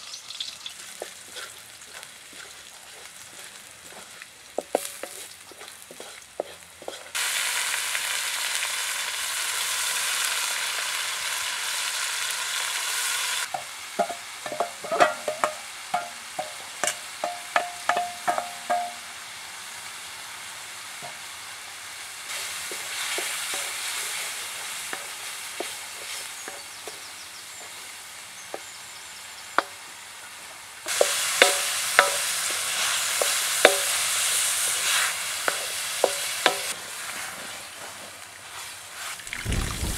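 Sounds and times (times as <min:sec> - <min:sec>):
food sizzling in hot oil: 0:00.0 - 0:39.9
spatula scraping and knocking wok: 0:00.1 - 0:07.3, 0:13.4 - 0:19.1, 0:21.0 - 0:21.3, 0:22.3 - 0:28.8, 0:30.9 - 0:39.2.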